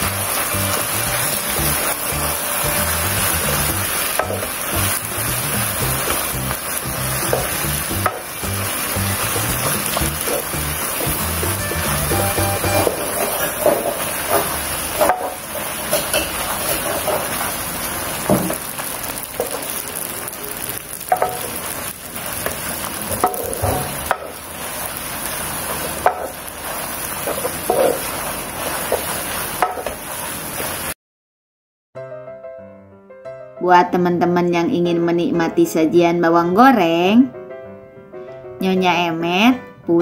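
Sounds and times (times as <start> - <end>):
spaghetti sizzling in wok: 0.0 - 31.0
spatula scraping pan: 8.8 - 17.6, 25.7 - 30.1.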